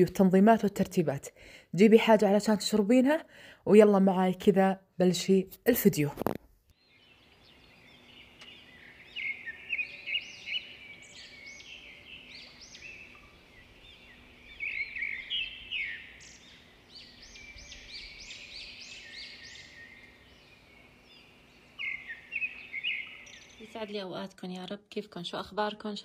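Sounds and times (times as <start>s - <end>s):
small birds chirping: 6.2s - 26.0s.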